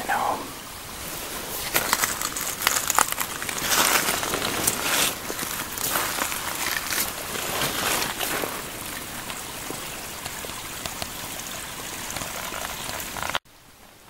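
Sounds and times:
footsteps crunching through snow: 1.0s - 9.0s.

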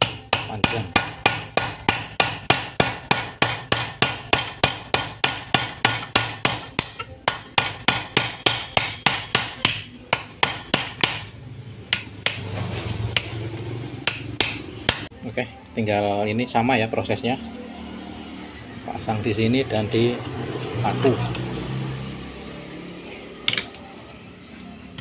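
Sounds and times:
hammer striking metal: 0.0s - 15.1s.

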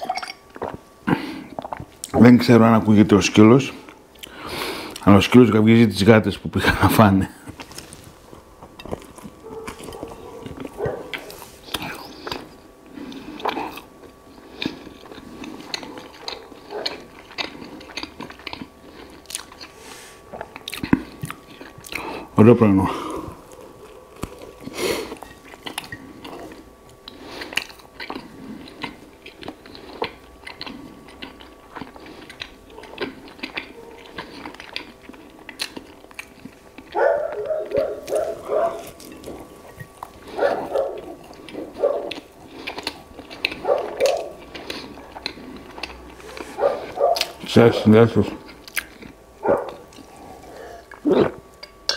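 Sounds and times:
person chewing bread: 0.4s - 2.1s, 3.7s - 5.0s, 7.4s - 51.9s
dog barking: 9.4s - 11.3s, 16.2s - 17.0s, 36.9s - 39.0s, 40.3s - 42.2s, 43.6s - 44.4s, 46.6s - 47.4s, 49.4s - 49.8s.

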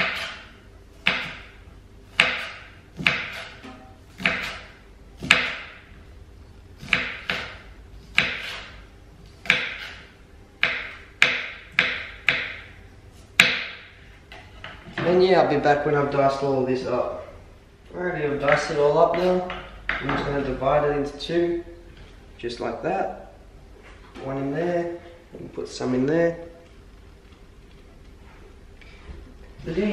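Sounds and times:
knife chopping on wooden board: 0.0s - 5.8s, 6.8s - 8.8s, 9.4s - 12.7s, 13.4s - 13.9s.

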